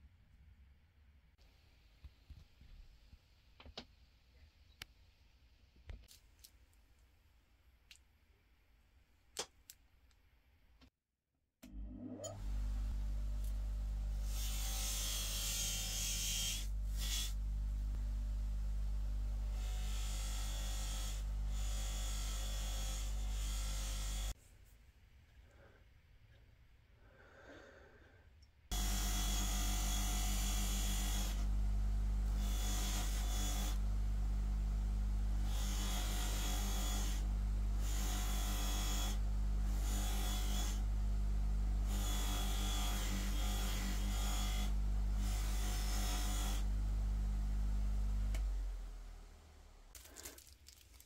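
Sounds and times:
bench grinder humming: 12.2 - 24.3, 28.7 - 49.9.

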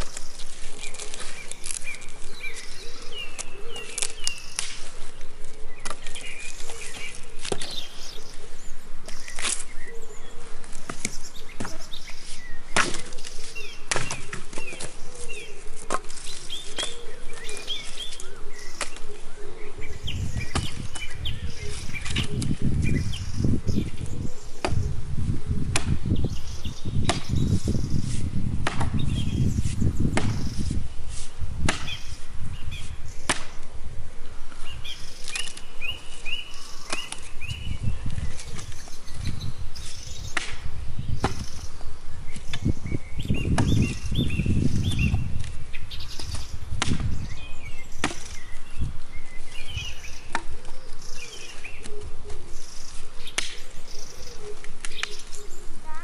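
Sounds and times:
birds chirping: 0.0 - 56.0
axe chopping branches: 3.4 - 5.0, 5.8 - 7.9, 9.0 - 9.7, 10.7 - 15.0, 15.8 - 19.1, 24.6 - 24.9, 25.7 - 26.2, 27.0 - 27.4, 28.1 - 29.2, 30.0 - 32.2, 33.2 - 33.7, 36.8 - 37.4, 40.2 - 41.6, 43.4 - 44.1, 45.0 - 47.2, 47.9 - 48.4, 50.0 - 50.8, 53.3 - 53.6.

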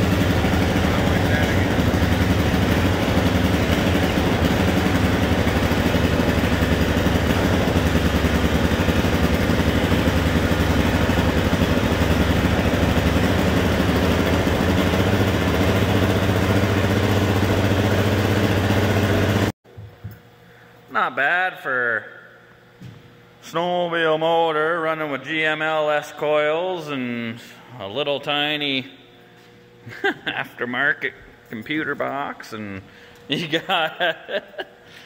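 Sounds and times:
snowmobile engine idling: 0.0 - 19.6.

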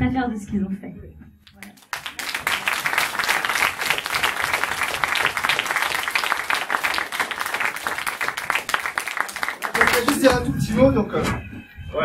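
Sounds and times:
audience applauding: 1.5 - 10.6.

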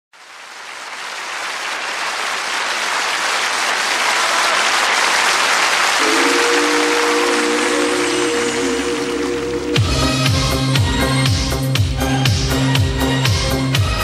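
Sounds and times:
studio audience applauding: 0.1 - 11.0
held musical notes: 6.0 - 14.0.

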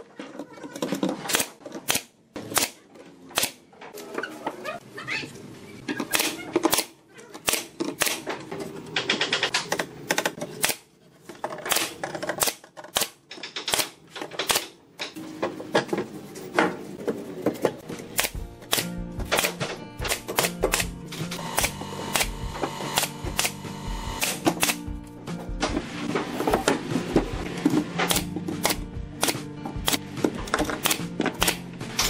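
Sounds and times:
background music: 17.8 - 32.0.

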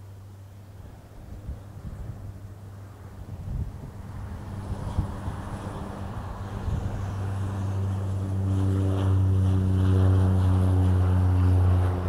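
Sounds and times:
turboprop propeller drone: 0.0 - 12.0.

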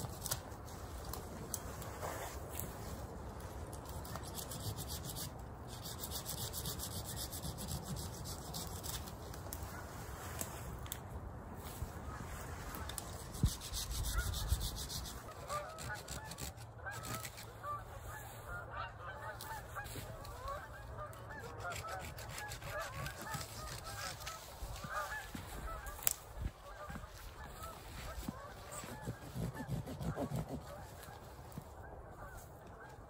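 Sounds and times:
branches snapping: 0.0 - 2.9, 22.0 - 26.6
branches rustling: 0.0 - 33.0
geese honking: 14.0 - 33.0.

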